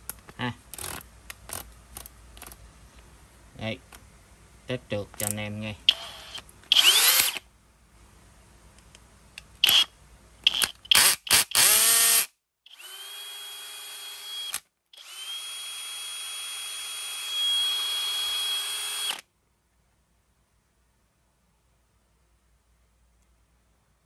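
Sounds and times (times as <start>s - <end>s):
cordless drill motor running: 5.9s - 7.4s, 10.5s - 19.2s.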